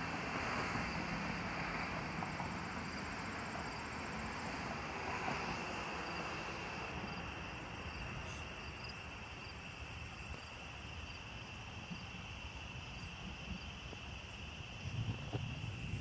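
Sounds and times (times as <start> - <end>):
insects trilling: 5.4 - 16.0.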